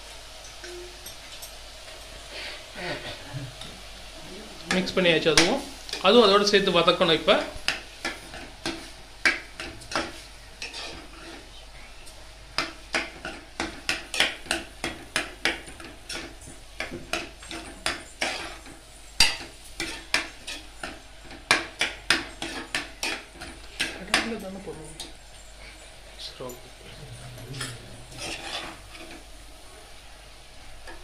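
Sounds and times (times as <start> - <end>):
faint frying sizzle: 0.0 - 31.0
metal spoon scraping pot: 10.6 - 11.4, 27.6 - 29.2.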